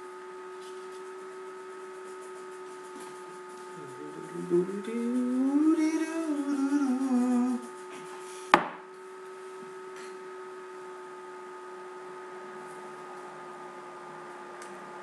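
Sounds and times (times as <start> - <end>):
steady whine: 0.0 - 15.0
person humming: 3.6 - 8.3.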